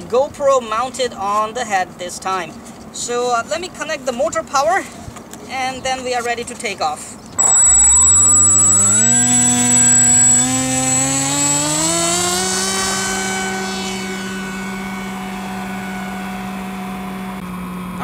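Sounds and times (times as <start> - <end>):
electric motor and propeller buzz: 7.4 - 18.0
high whine: 7.4 - 18.0.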